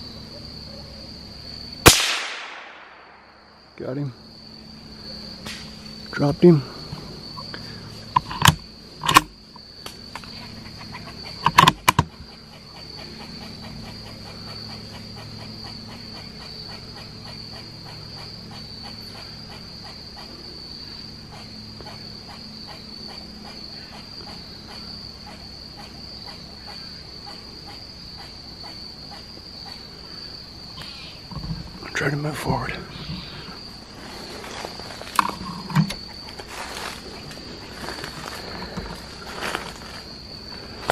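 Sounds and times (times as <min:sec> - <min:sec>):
crickets chirping: 0:00.0 - 0:40.9
sharp clicks or knocks: 0:08.2 - 0:10.0, 0:11.4 - 0:12.1.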